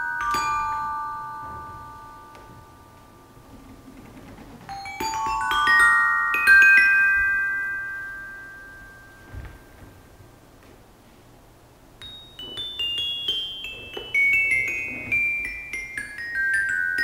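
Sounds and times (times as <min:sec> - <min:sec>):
metallophone notes ringing: 0:00.0 - 0:03.9, 0:04.7 - 0:10.2, 0:12.0 - 0:17.0.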